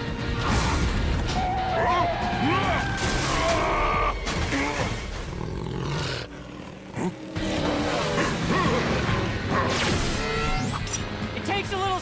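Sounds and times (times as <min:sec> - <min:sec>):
creature growling and roaring: 0:03.4 - 0:09.4.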